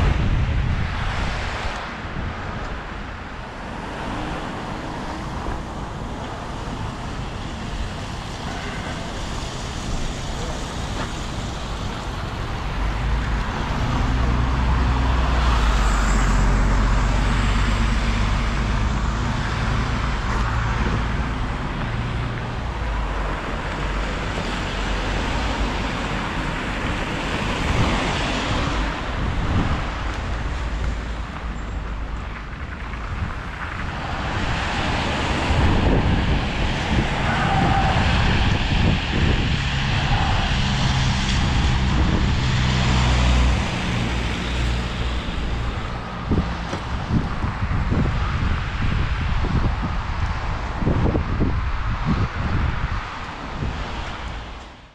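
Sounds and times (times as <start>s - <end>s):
cars passing on wet road: 0.0s - 54.9s.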